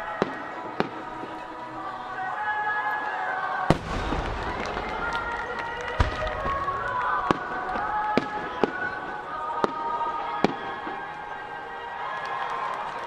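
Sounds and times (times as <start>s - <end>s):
firework shells bursting: 3.7s - 8.8s.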